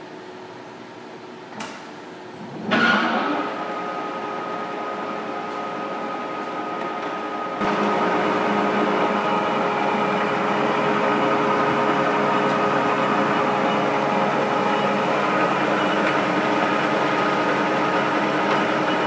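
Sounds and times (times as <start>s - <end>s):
lathe running with whine: 3.0s - 19.0s.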